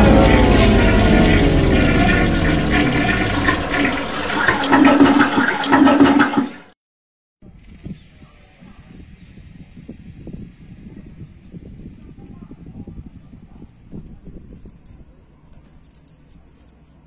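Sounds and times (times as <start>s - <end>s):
toilet flush rushing water: 0.0s - 6.8s
faint outdoor background sound: 7.4s - 17.0s.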